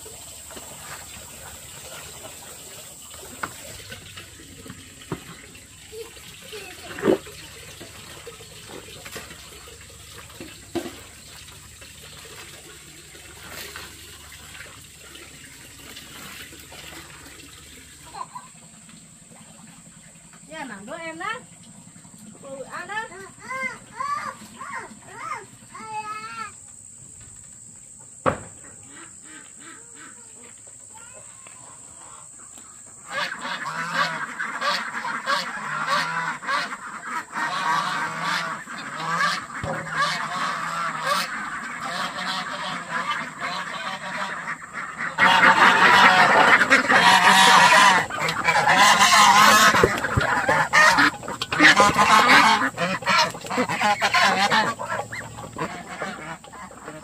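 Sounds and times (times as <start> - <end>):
sharp knock: 28.2 - 28.6
domestic fowl honking: 28.6 - 30.5, 31.7 - 57.0.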